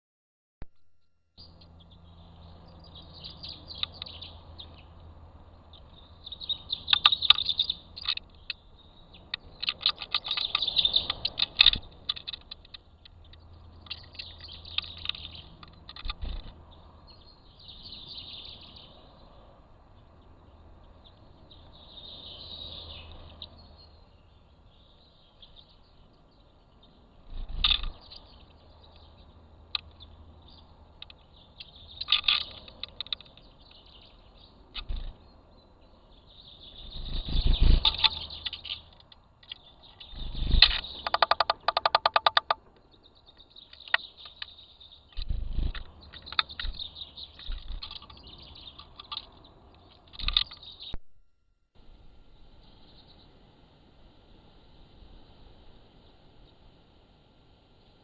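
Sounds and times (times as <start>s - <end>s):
small birds chirping: 1.4s - 51.0s, 52.3s - 58.0s
clicks and taps on camera: 40.4s - 42.8s, 45.1s - 50.7s.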